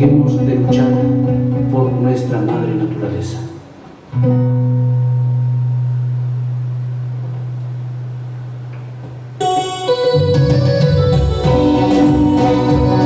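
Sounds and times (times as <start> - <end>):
keyboard backing track: 0.0 - 13.0
low electronic keyboard note: 3.4 - 13.0.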